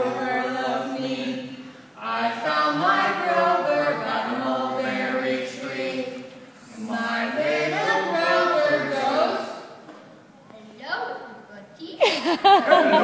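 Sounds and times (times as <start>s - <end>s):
voices chanting unaccompanied: 0.0s - 9.8s.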